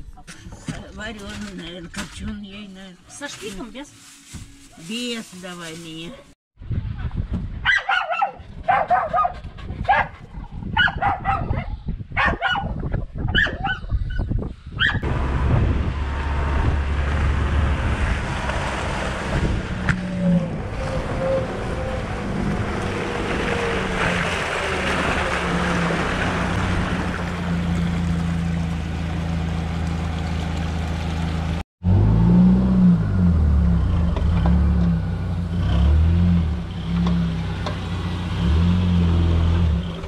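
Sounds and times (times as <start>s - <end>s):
tyres on muddy dirt road: 0.0s - 11.4s, 14.8s - 40.0s
dogs barking: 7.6s - 13.9s, 14.8s - 15.0s
van engine running: 15.0s - 40.0s.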